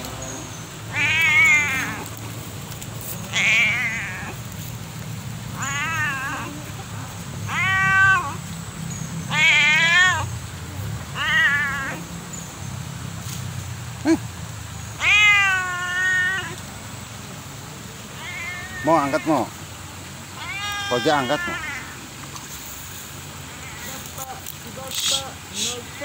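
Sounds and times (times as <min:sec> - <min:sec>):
cat meowing: 0:00.9 - 0:02.2, 0:03.2 - 0:04.4, 0:05.5 - 0:08.6, 0:09.3 - 0:10.3, 0:11.0 - 0:12.1, 0:14.9 - 0:16.7, 0:18.1 - 0:19.6, 0:20.4 - 0:22.1, 0:23.5 - 0:24.2.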